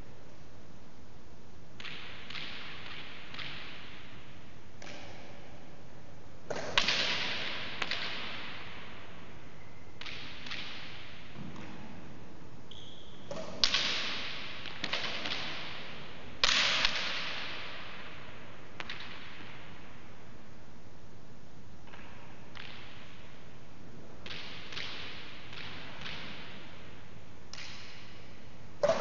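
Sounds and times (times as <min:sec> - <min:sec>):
ball cracking off court walls: 0:28.8 - 0:29.0.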